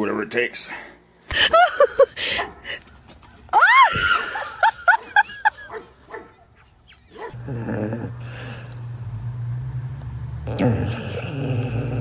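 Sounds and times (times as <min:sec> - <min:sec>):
steady low drone: 0:07.4 - 0:12.0.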